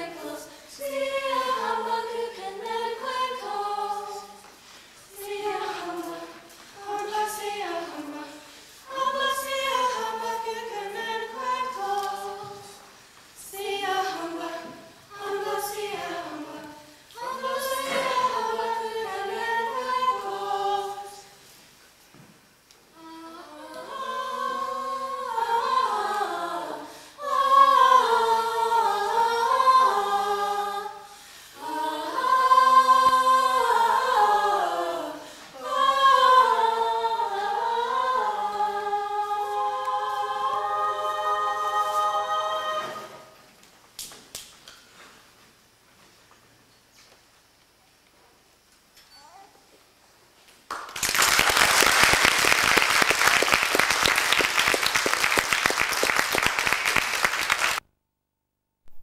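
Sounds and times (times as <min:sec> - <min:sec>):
group singing in harmony: 0:00.0 - 0:21.5, 0:23.0 - 0:43.5.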